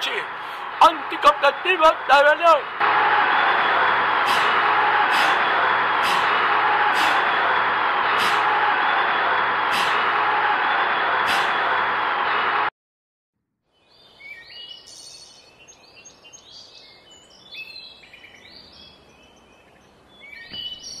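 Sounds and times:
loud rushing noise: 0:02.0 - 0:12.7
birds chirping: 0:13.8 - 0:21.0.

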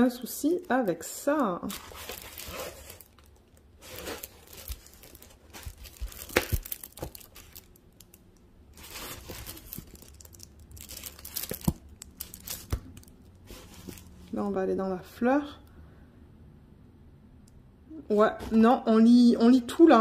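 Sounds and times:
plastic film crinkling: 0:00.5 - 0:14.4.

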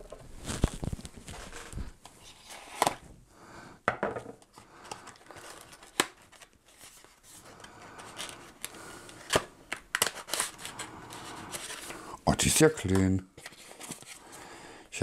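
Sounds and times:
packaging scraping and rubbing: 0:00.3 - 0:03.0, 0:04.8 - 0:14.4.

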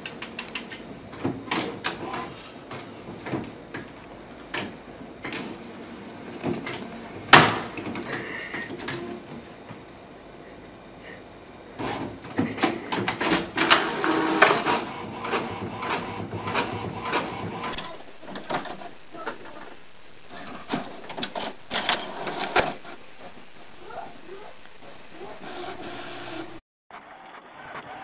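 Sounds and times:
printer clicking and rattling: 0:00.0 - 0:05.7, 0:11.8 - 0:18.9, 0:20.3 - 0:23.0.

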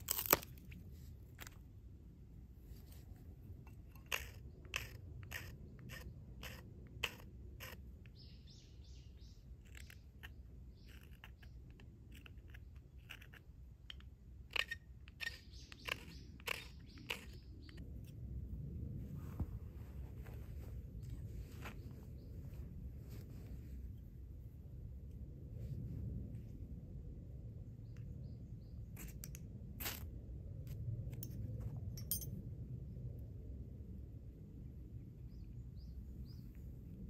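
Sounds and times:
knife scraping wood: 0:00.0 - 0:01.6, 0:02.9 - 0:08.5, 0:09.6 - 0:17.8
small birds chirping: 0:04.0 - 0:13.4, 0:14.5 - 0:17.9, 0:27.7 - 0:29.4, 0:35.2 - 0:36.8.

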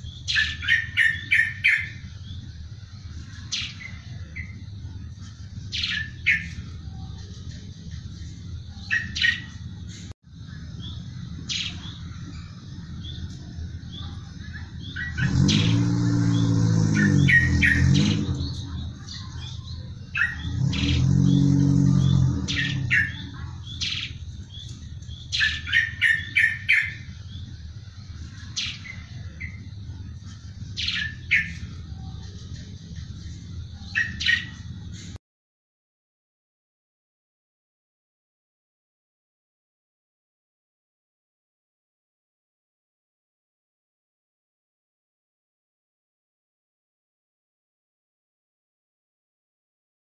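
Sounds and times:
sparrow chirping: 0:00.0 - 0:10.1, 0:10.7 - 0:35.2.

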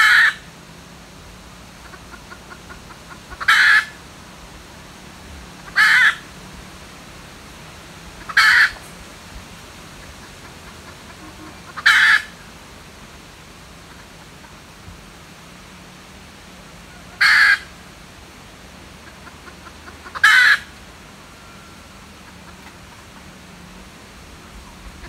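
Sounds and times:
junglefowl hen calling: 0:00.0 - 0:00.5, 0:01.7 - 0:04.0, 0:05.5 - 0:06.3, 0:08.1 - 0:08.9, 0:09.9 - 0:14.9, 0:16.8 - 0:17.9, 0:18.8 - 0:23.8.

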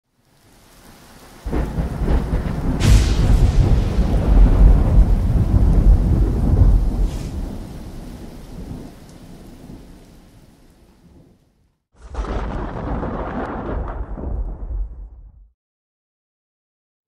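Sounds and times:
steady rain: 0:00.0 - 0:14.8
thunder rumbling: 0:00.8 - 0:11.4, 0:12.0 - 0:15.4.

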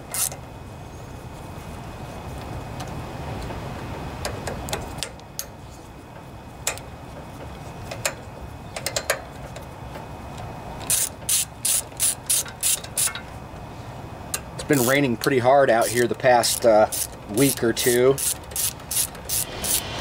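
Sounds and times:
ratchet clicking: 0:00.1 - 0:00.4, 0:10.8 - 0:13.3, 0:14.3 - 0:15.0, 0:15.8 - 0:20.0.

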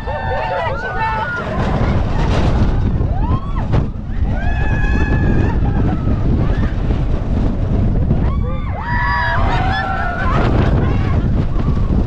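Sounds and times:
wind buffeting microphone: 0:00.0 - 0:12.0
riders screaming: 0:08.2 - 0:11.8.

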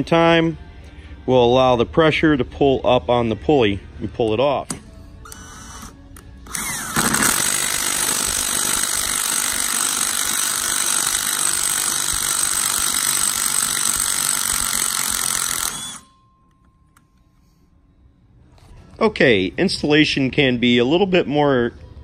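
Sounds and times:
impact wrench hammering: 0:06.5 - 0:16.1.

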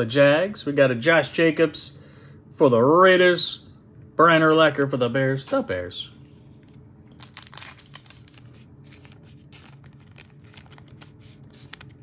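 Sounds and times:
steady low hum: 0:00.0 - 0:12.0
trading cards and plastic sleeves handled: 0:06.2 - 0:12.0.

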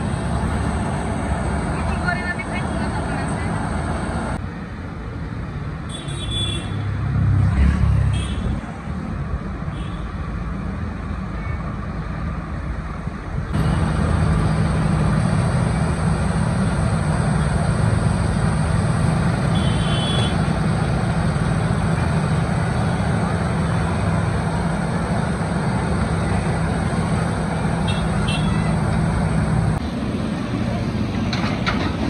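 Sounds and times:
diesel engine running: 0:00.0 - 0:04.4, 0:13.5 - 0:32.0.

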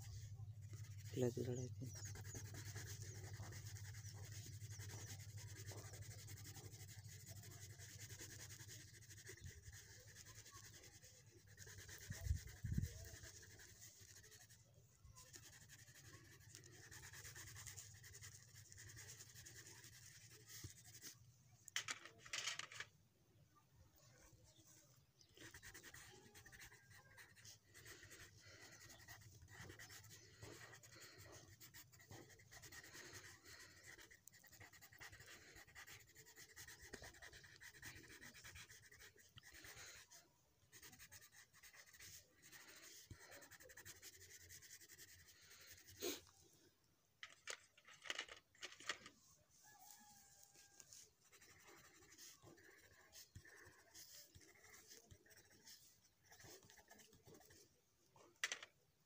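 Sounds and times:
pencil scratching on paper: 0:00.0 - 0:22.9, 0:24.1 - 0:46.3, 0:48.2 - 0:58.7.

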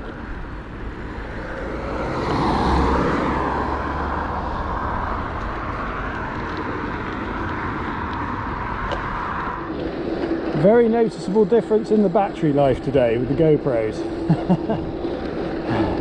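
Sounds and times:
bicycle tyre noise on road: 0:00.0 - 0:16.0.

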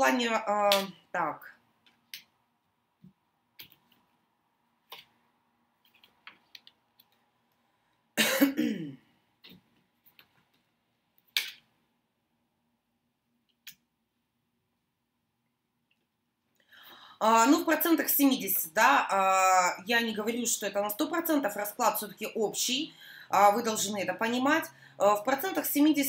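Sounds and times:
person clearing throat: 0:08.2 - 0:09.1.

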